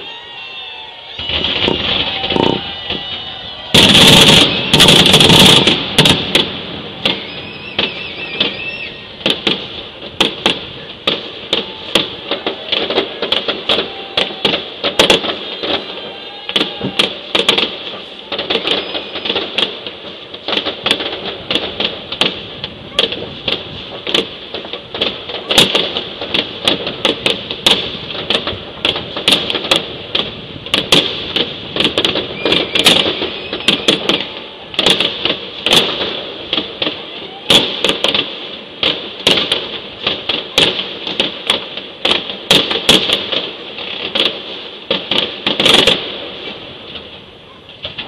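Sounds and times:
fireworks bangs and crackles: 0.0 - 48.0.

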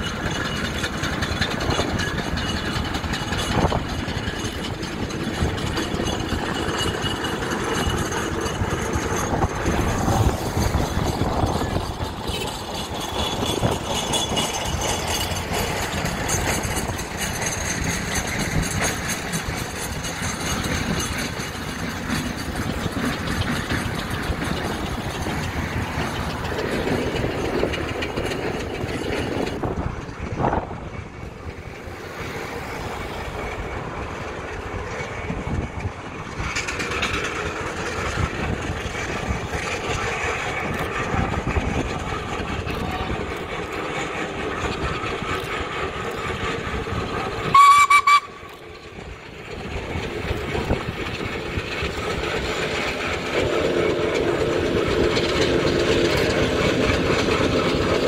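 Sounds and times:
steam engine clatter and hiss: 0.0 - 58.0.

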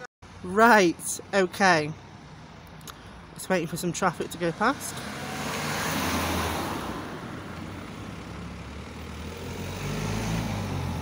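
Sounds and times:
vehicle passing by: 4.5 - 11.0.

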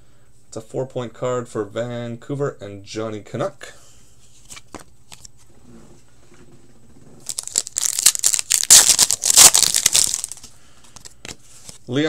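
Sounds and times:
wrapper tearing and crinkling: 7.2 - 11.1.

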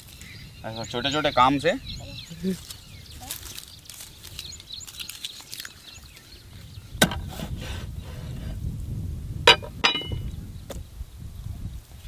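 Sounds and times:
machete chopping on wooden board: 7.0 - 7.6.

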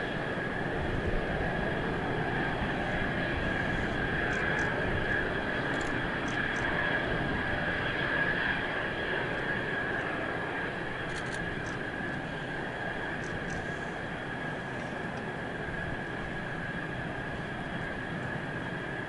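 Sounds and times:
jet engine whine and rumble: 0.0 - 19.0.

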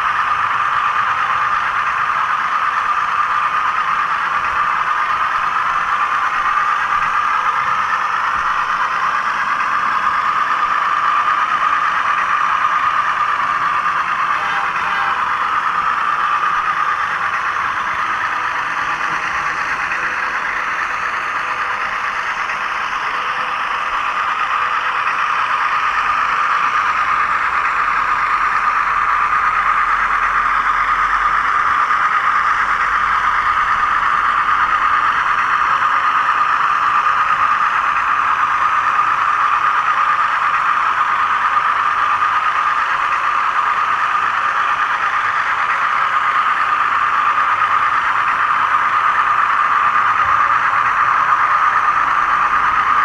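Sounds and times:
model train motor whine: 0.0 - 53.0
wheels rattling on rail: 0.0 - 53.0.

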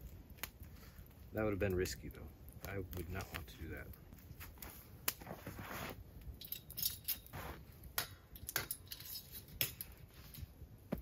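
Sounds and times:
rustling: 2.6 - 7.8
metal chain clinking: 6.4 - 7.3, 8.4 - 9.5.

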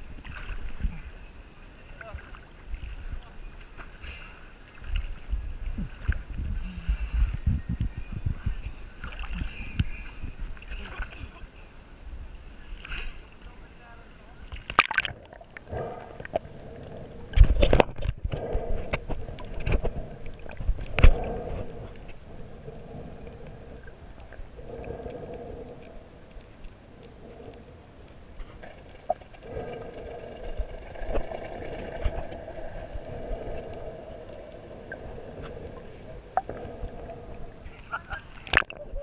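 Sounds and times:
muffled underwater hum: 15.6 - 39.0.

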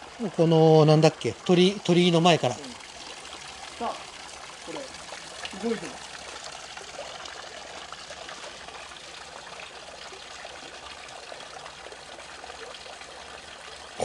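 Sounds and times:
flowing water hiss: 0.0 - 14.0.

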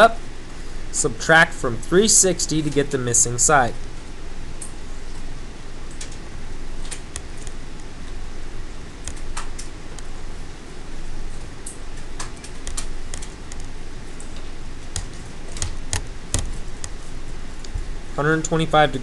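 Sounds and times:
low steady hum: 0.0 - 19.0
calculator keys clicking: 14.9 - 16.6.

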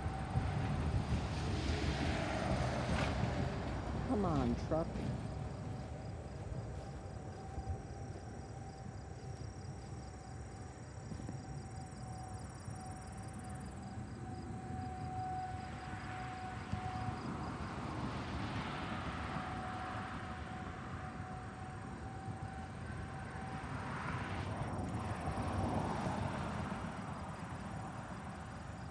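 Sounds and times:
vehicle passing: 0.0 - 11.4, 22.8 - 28.5
distant warning siren tone: 0.0 - 28.9.

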